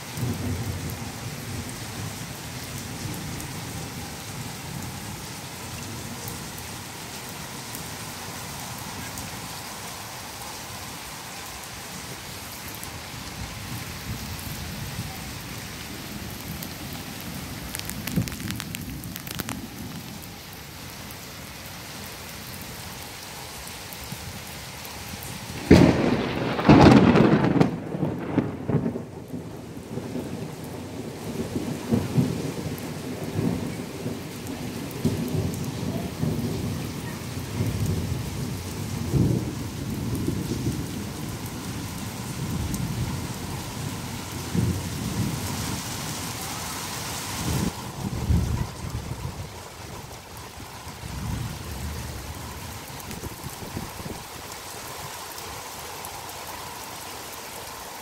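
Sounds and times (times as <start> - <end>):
heavy rain on concrete roof: 0.0 - 58.0
thunderclap: 25.6 - 30.9
low thunder rumbling: 25.6 - 45.6, 47.4 - 54.4.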